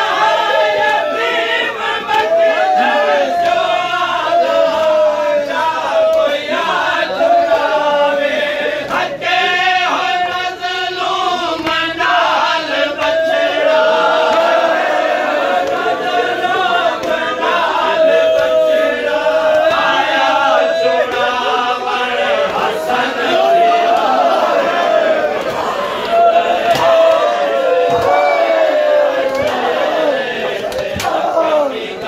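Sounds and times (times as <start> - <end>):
men chanting in unison: 0.0 - 32.0.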